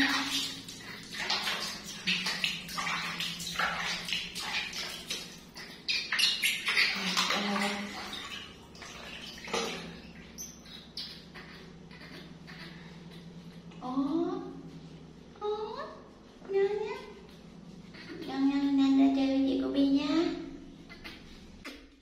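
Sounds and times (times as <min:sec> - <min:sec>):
water splashing in a basin: 0:00.0 - 0:11.2.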